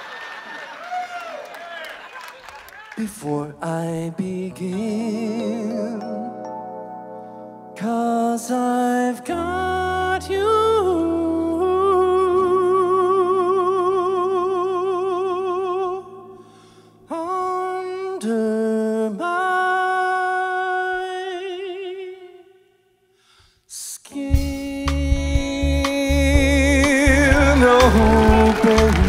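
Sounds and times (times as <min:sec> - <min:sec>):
man singing long vibrato notes: 0:03.0 - 0:06.6, 0:07.7 - 0:22.8, 0:23.8 - 0:29.0.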